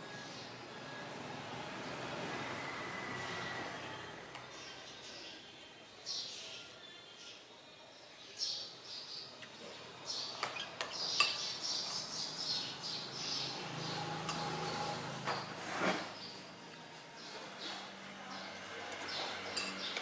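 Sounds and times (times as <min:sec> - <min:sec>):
small birds chirping: 0:04.3 - 0:20.0
metal spoon scraping ceramic bowl: 0:14.2 - 0:15.0.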